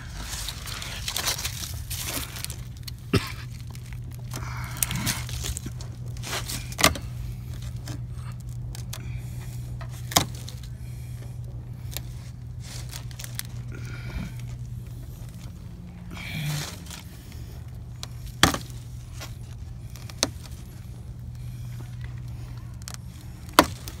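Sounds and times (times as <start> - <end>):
steady low hum: 0.0 - 24.0
tape liner peeling and rustling: 17.6 - 24.0.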